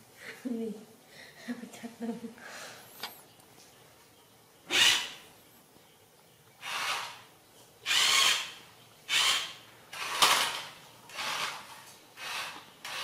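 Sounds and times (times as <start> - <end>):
toy car electric motor whirring: 4.7 - 5.2, 6.6 - 13.0.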